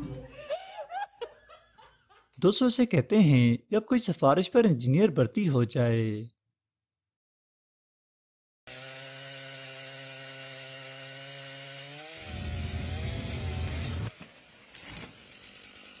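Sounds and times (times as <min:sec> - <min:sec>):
chainsaw cutting wood: 0:08.7 - 0:16.0.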